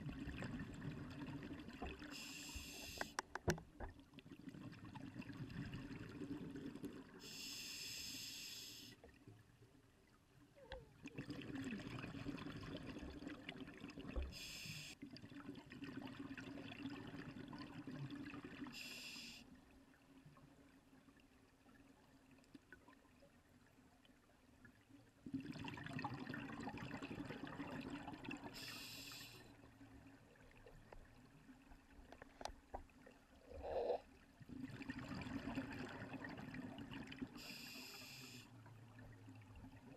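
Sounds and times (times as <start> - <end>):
regulator hissing inhalations: 2.1 - 3.2, 7.3 - 9.0, 14.4 - 15.0, 18.8 - 19.4, 28.6 - 29.5, 37.4 - 38.5.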